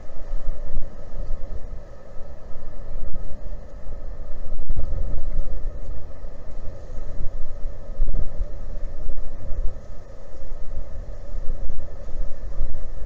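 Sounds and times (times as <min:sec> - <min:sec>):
steady hum: 0:00.0 - 0:13.0
wind buffeting microphone: 0:00.0 - 0:13.0.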